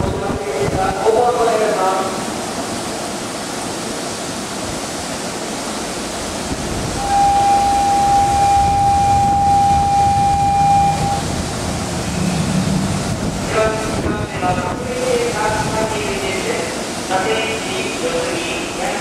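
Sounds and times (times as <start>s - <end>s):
electric train humming: 1.0s - 19.0s
departure buzzer high tone: 7.0s - 11.2s.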